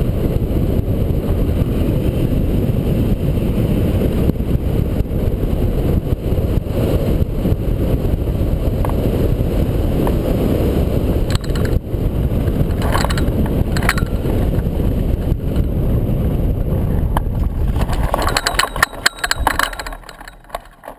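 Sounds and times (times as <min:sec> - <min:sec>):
wind rushing over microphone: 0:00.0 - 0:20.9
clicks and rattles: 0:11.3 - 0:11.8, 0:12.4 - 0:15.7, 0:17.2 - 0:20.9.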